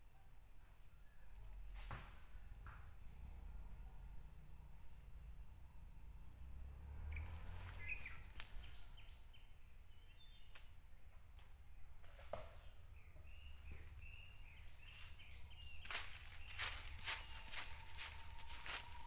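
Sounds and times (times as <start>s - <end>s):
insects droning: 0.0s - 19.0s
bird chirps: 7.1s - 10.6s, 12.6s - 19.0s.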